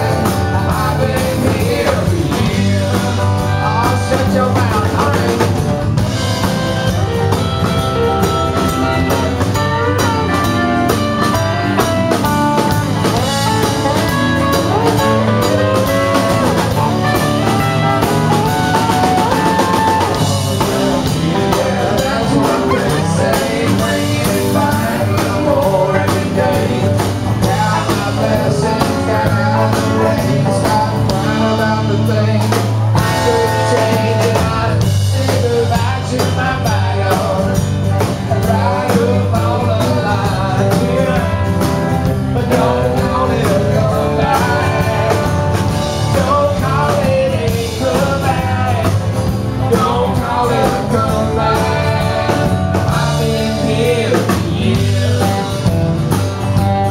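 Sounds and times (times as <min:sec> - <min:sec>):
acoustic guitar: 0:00.0 - 0:56.9
bass guitar: 0:00.0 - 0:56.9
drum kit: 0:00.0 - 0:56.9
electric guitars: 0:00.0 - 0:56.9.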